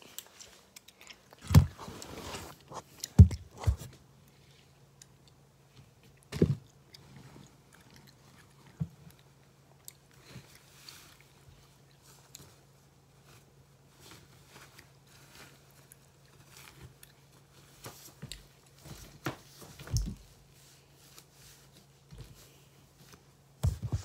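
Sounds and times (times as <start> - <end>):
clothing rustling: 1.4 - 4.0, 13.2 - 24.0
small knocks and thumps: 3.0 - 4.0, 23.6 - 24.0.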